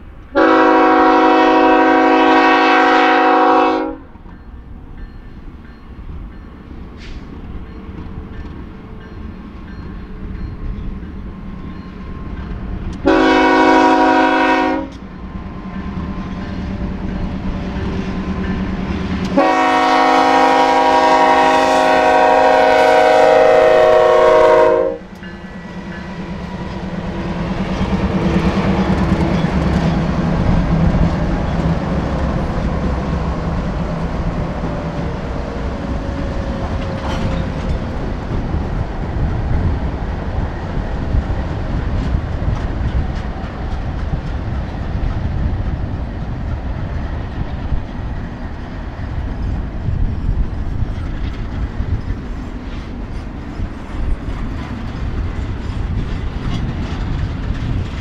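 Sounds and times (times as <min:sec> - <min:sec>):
locomotive horn chord: 0:00.3 - 0:04.1, 0:13.0 - 0:15.0, 0:19.3 - 0:25.2
freight cars rumbling and clattering: 0:25.1 - 0:58.0.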